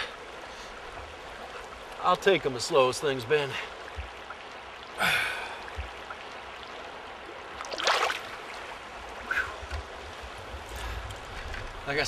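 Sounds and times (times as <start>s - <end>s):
river running over rocks: 0.0s - 12.0s
fish splashing in water: 7.6s - 8.5s.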